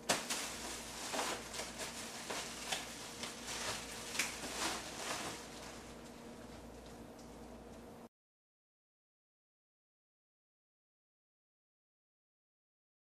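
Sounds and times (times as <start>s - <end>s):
items knocking and clattering: 0.0s - 5.8s.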